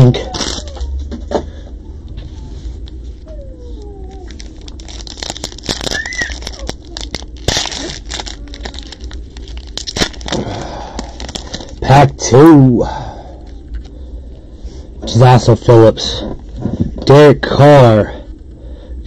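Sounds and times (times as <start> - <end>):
foil wrapper tearing and crinkling: 0.0 - 0.9, 4.2 - 12.0.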